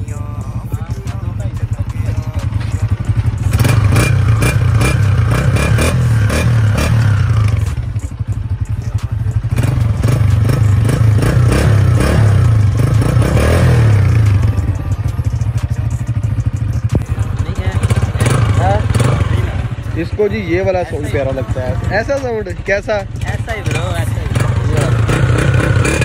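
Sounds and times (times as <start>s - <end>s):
motorcycle engine revving: 0.0s - 26.0s.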